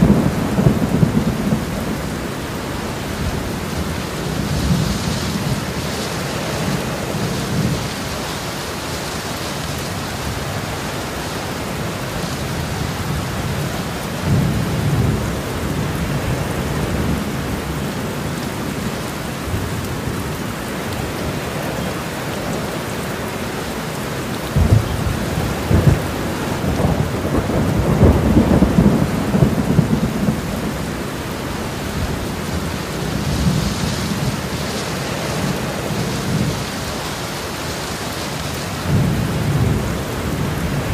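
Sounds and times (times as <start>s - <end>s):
thunder rumbling: 0.0s - 8.2s, 24.4s - 36.9s, 38.7s - 40.9s
steady rain: 0.0s - 40.9s.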